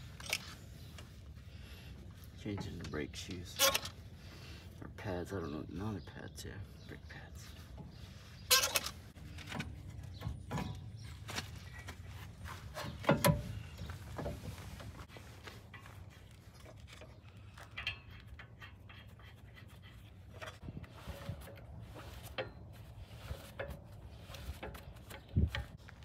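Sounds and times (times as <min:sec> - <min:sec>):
metal tools clinking: 0:02.6 - 0:04.0, 0:08.5 - 0:09.6, 0:16.5 - 0:19.2.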